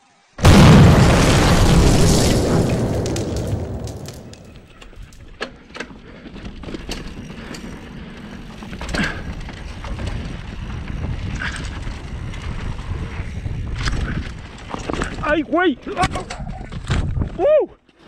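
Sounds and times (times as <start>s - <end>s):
tyres rumbling on loose dirt: 0.4s - 18.0s
bike clicks and rattles: 4.6s - 18.0s
wind on microphone: 9.3s - 15.2s, 16.3s - 17.4s.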